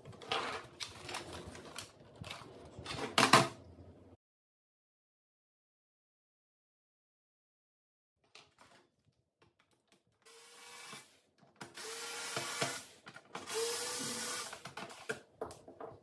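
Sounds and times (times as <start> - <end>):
electric screwdriver whining: 11.7 - 15.0.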